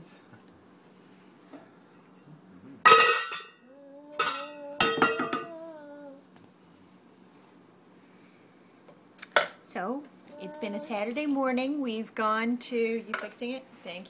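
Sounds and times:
drawn-out voice: 3.7 - 6.2, 10.3 - 11.2.

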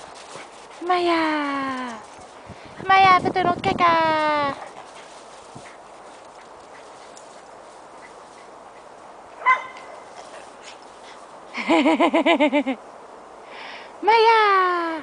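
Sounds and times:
dog yapping barks: 9.4 - 10.0
dog yelp: 9.4 - 10.0.

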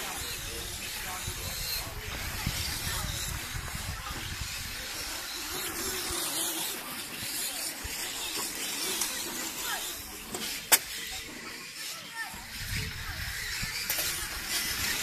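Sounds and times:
toy car tyres and motor hissing: 0.0 - 15.0.

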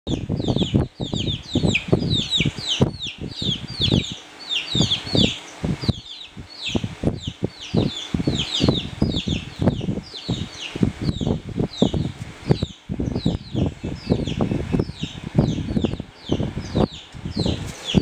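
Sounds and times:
birds chirping: 0.1 - 18.0
dull low thumps: 4.8 - 18.0.

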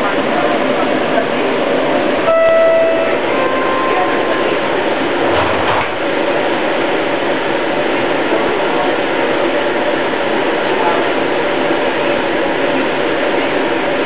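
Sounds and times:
rail car cab running hum: 0.0 - 14.0
short electronic tone: 2.3 - 4.4
high thin tone: 2.3 - 4.7.

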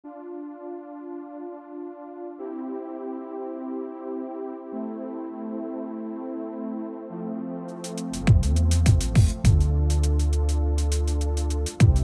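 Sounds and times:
synthesizer chords: 0.0 - 12.0
drum beats: 7.8 - 12.0.

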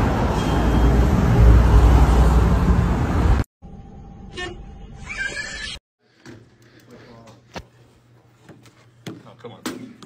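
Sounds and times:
city street traffic rumble: 0.0 - 3.4.

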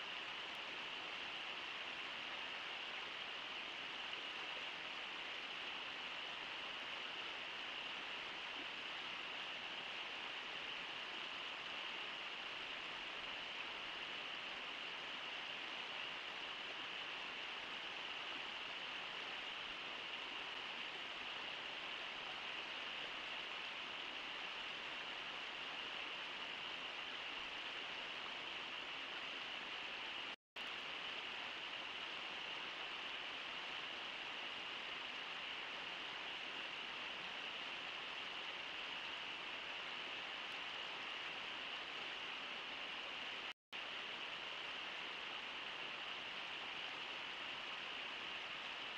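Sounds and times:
river water rushing: 0.0 - 48.9.

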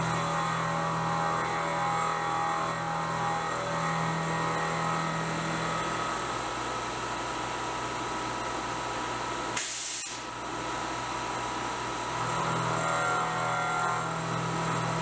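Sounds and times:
milling machine spindle whine: 0.0 - 7.4, 11.7 - 15.0
air blast hiss: 9.6 - 10.3.

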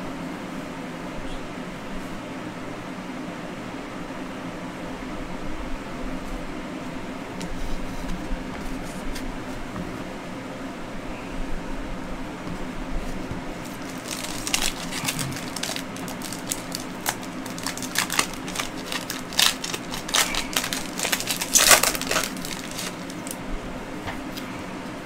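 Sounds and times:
foil wrapper tearing and crinkling: 13.7 - 23.4.

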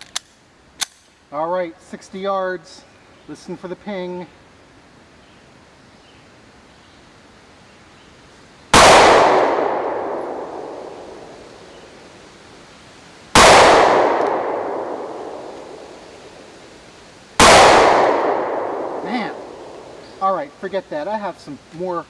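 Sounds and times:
pistol shots echoing: 8.8 - 11.6, 13.4 - 16.0, 17.4 - 20.0.

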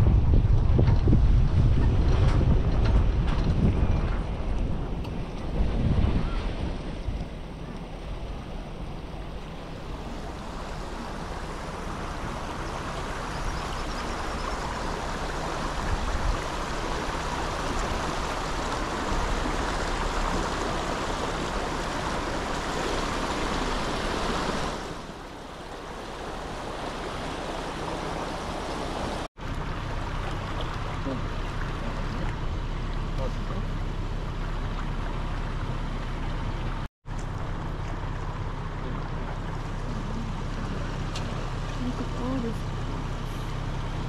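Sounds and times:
engine running low: 0.0 - 44.0
water churning against vehicle: 0.0 - 44.0.

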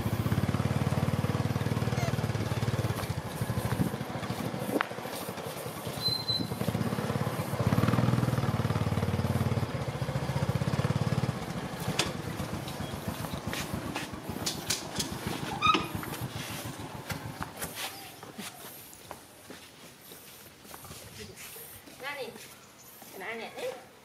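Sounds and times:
small motorbike engine running: 0.0 - 18.8.

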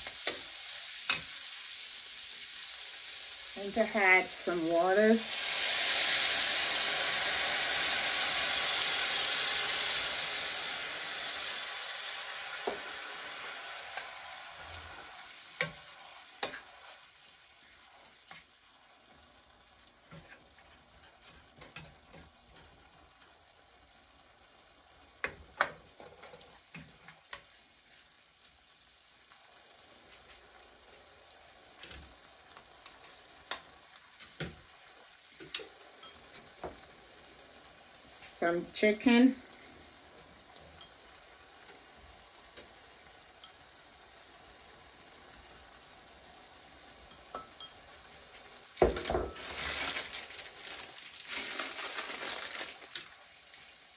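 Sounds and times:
water sizzling in a hot pan: 0.0 - 53.9
spatula scraping a pan: 13.9 - 17.1.

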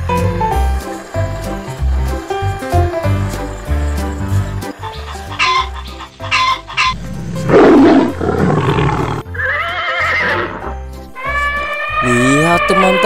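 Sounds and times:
background music: 0.0 - 13.0
high-pitched animal call: 4.8 - 13.0
animal roar: 7.0 - 13.0.

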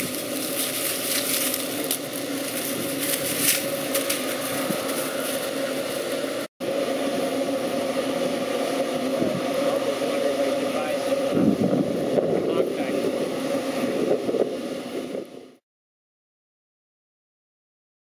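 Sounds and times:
dry corn stalks crackling: 0.0 - 6.5
farm machine engine drone: 0.0 - 15.6.

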